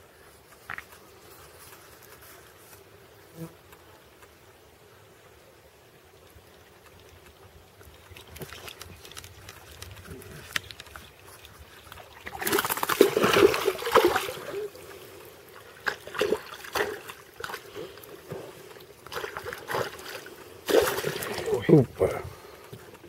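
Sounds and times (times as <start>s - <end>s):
fish splashing in water: 8.1s - 21.6s.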